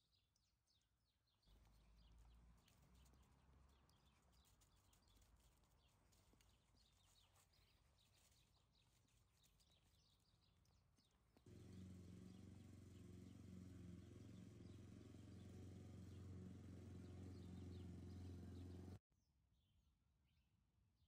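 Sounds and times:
lawn mower humming: 11.4 - 19.0.

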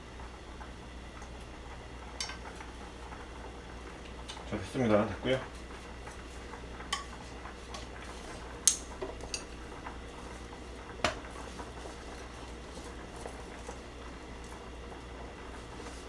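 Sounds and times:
low steady hum: 0.0 - 16.0
chopsticks clicking on frying pan: 8.6 - 9.5.

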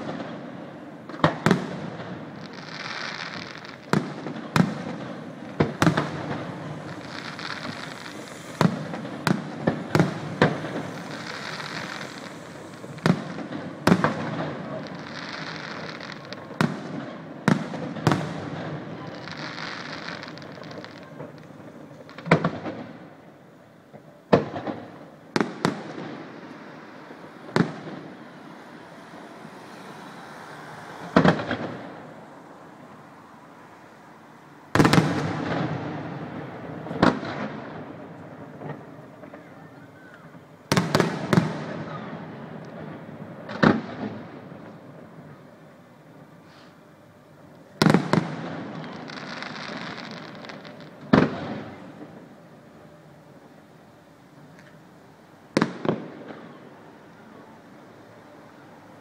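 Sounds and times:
firework shells bursting: 2.4 - 16.8.

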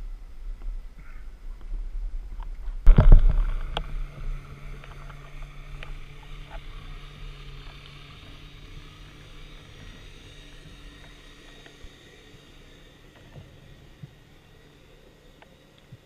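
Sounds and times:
underwater low hum: 0.0 - 16.0
faint underwater clicks: 2.4 - 12.2, 15.2 - 16.0
water sloshing and rushing: 2.7 - 12.3.

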